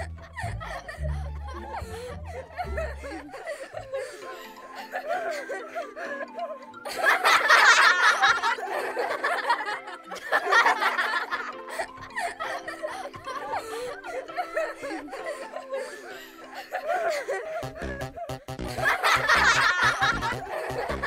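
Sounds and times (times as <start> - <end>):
background music: 0.0 - 21.0
laughter: 0.0 - 21.0.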